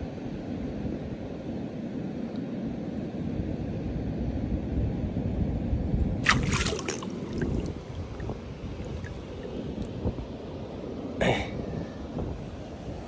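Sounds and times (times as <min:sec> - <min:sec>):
water dripping: 0:06.2 - 0:09.9
water splashing and trickling: 0:06.2 - 0:10.0
steady low rumble: 0:07.0 - 0:11.2.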